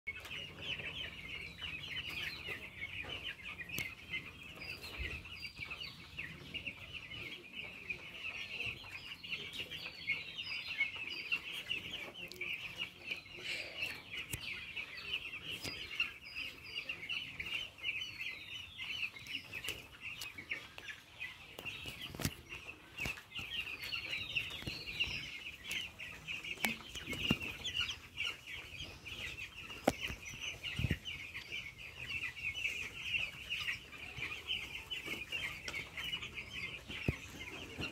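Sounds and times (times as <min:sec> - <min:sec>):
chicks peeping: 0:00.1 - 0:37.9.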